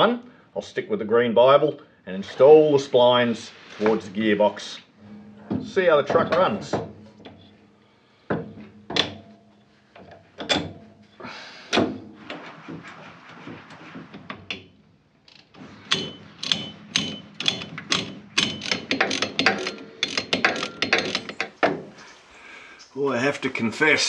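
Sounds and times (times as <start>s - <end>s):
metal knocks and clunks: 5.0s - 14.8s, 15.6s - 22.0s
ratchet spanner clicking: 15.9s - 21.5s.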